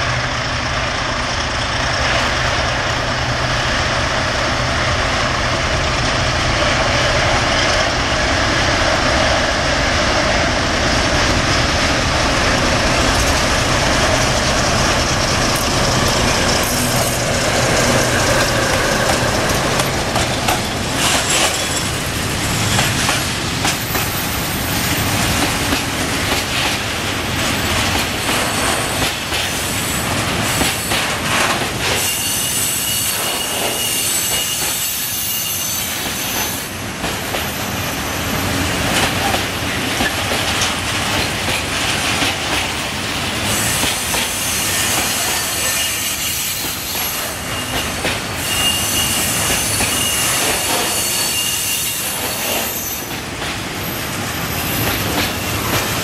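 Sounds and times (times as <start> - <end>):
diesel locomotive engine drone: 0.0 - 32.0
train wheels clacking over rail joints: 11.3 - 37.6, 38.8 - 53.9, 54.6 - 56.0
high wheel squeal: 32.0 - 36.8, 43.5 - 53.2.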